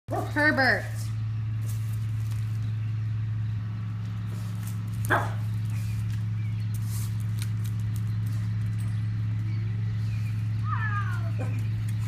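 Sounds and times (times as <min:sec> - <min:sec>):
steady low hum: 0:00.1 - 0:12.0
dog barking: 0:05.1 - 0:05.5.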